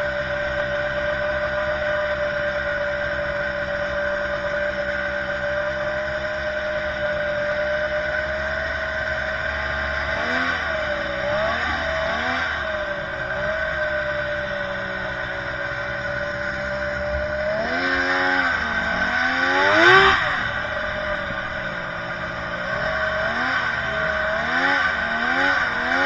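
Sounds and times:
snowmobile engine revving: 0.0s - 26.0s.

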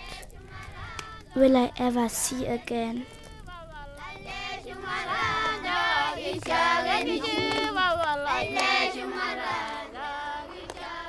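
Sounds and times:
children singing: 0.0s - 1.6s, 2.6s - 11.0s.

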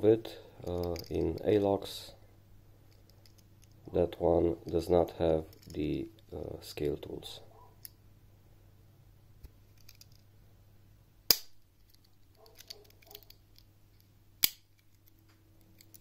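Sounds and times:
light handling clicks: 11.9s - 16.0s
pocket knife tools snapping shut: 14.4s - 14.9s.

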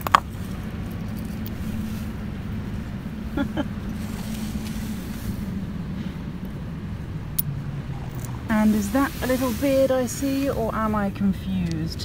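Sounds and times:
low engine drone: 0.0s - 12.0s.

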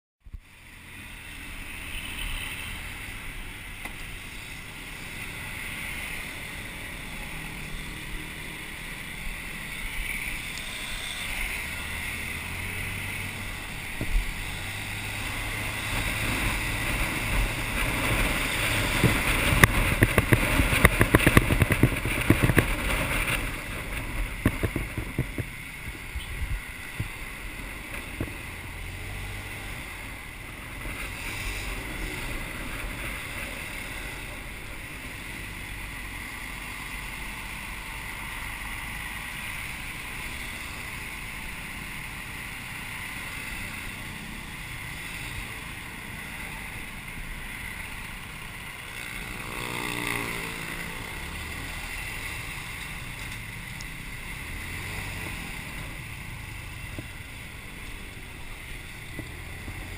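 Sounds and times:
wind rushing over microphone: 9.3s - 35.9s
motor scooter engine running: 15.9s - 28.4s, 48.9s - 59.9s.

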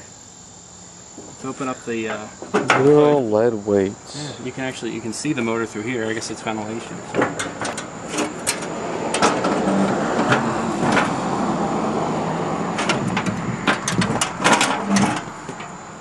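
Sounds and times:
scraping rustle: 5.1s - 11.3s, 12.7s - 15.8s
metal hood panel clanking: 6.9s - 11.4s, 12.7s - 15.8s.

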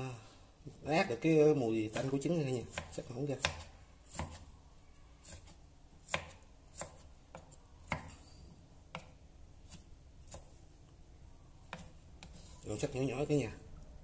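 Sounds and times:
knife chopping on wooden board: 1.9s - 4.5s, 5.2s - 8.2s, 8.9s - 10.5s, 11.7s - 12.4s.

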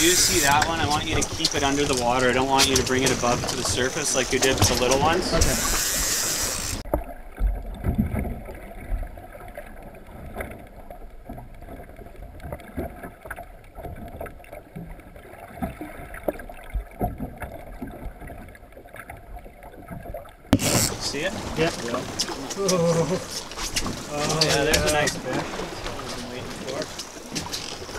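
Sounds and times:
underwater knocks and clicks: 0.0s - 22.5s, 23.3s - 27.9s
muffled underwater wash: 0.0s - 27.9s.

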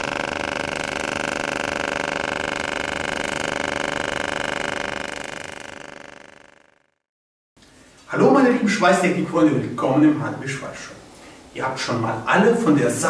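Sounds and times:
welding arc buzzing: 0.0s - 7.0s.

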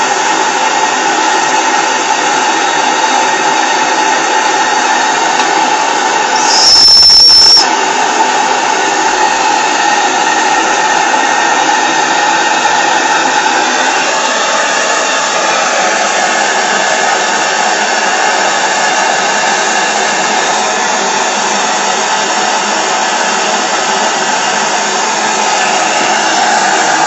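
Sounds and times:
miniature steam engine hissing: 6.2s - 7.7s
steam whistle toot: 6.3s - 7.8s.

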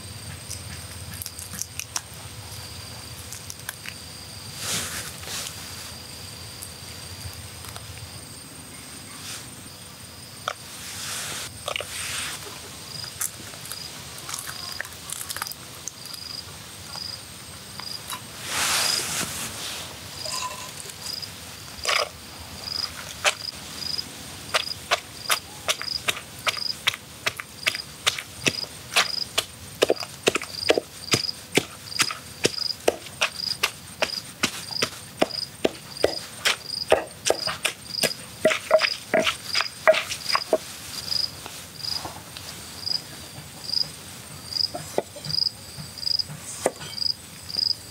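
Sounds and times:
cricket chirping: 0.0s - 10.8s, 11.4s - 19.1s, 20.0s - 47.9s.

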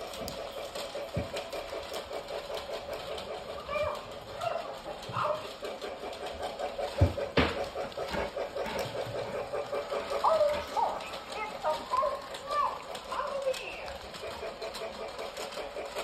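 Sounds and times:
toy train clicking on track: 0.0s - 16.0s
dog whining: 3.6s - 5.4s.

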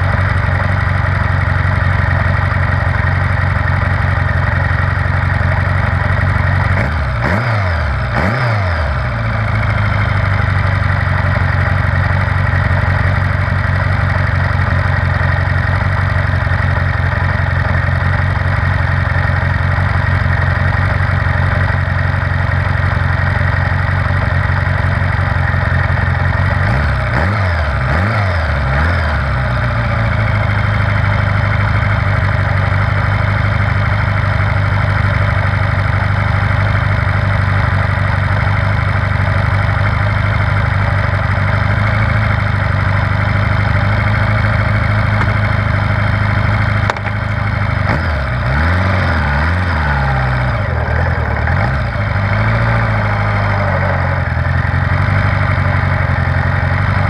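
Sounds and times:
motorcycle engine idling and revving: 0.0s - 57.0s
single clunk: 46.9s - 47.2s.

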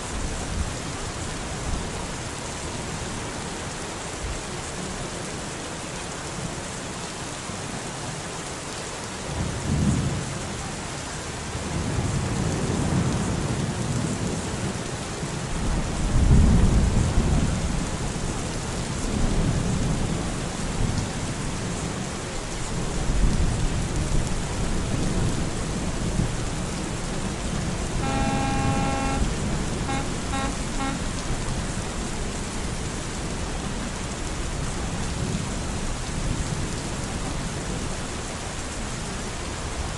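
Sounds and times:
steady rain falling: 0.0s - 39.9s
short pitched tone: 28.0s - 31.3s.

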